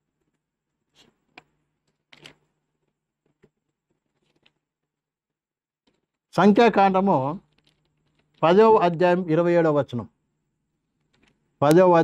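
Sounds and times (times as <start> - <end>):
faint handling clicks and rustles: 0.0 - 6.3, 7.3 - 8.4, 10.7 - 11.6.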